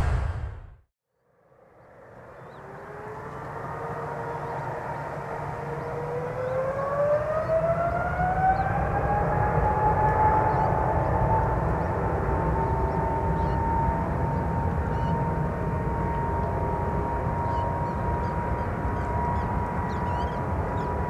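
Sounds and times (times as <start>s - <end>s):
jet engines spooling up: 0.0s - 0.8s.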